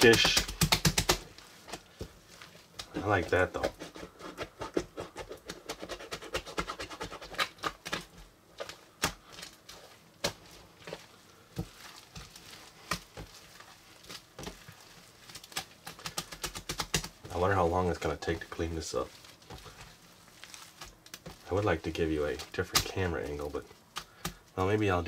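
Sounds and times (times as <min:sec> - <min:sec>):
slime crackling and popping: 0:00.0 - 0:01.9, 0:07.2 - 0:24.7.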